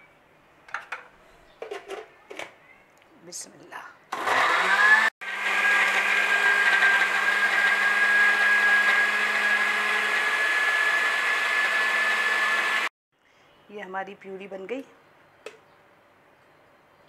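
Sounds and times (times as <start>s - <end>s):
electric blender whining: 4.1s - 12.9s.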